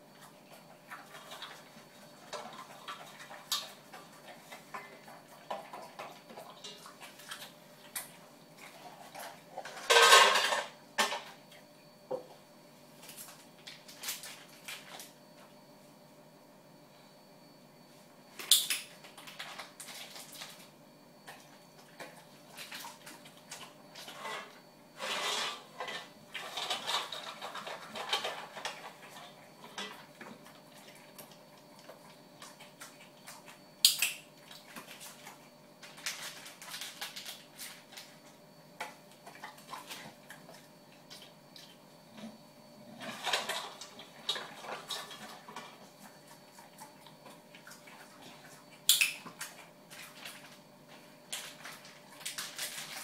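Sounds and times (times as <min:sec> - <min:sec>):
metal bowl clinking and rattling: 0:09.6 - 0:11.2.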